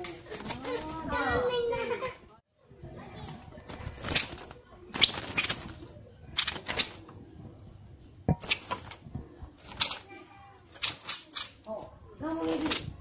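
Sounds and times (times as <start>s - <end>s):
bird fluttering wings in cage: 0.2s - 1.0s, 3.2s - 7.1s, 8.4s - 11.6s, 12.3s - 13.0s.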